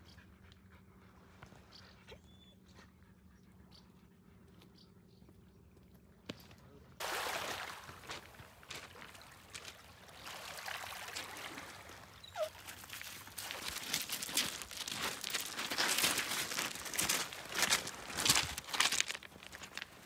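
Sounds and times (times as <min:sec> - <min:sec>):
small waves lapping over pebbles: 0:07.0 - 0:20.0
footsteps crunching on pebbles: 0:07.6 - 0:09.8, 0:12.5 - 0:20.0.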